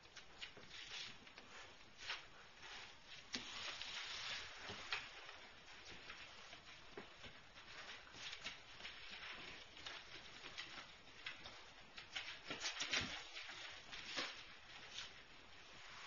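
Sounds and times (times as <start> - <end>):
puppy claws clicking on hardwood floor: 4.6 - 15.1.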